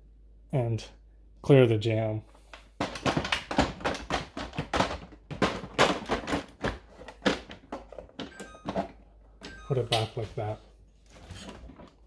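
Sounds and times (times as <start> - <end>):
plastic and ice clattering: 2.7 - 12.0.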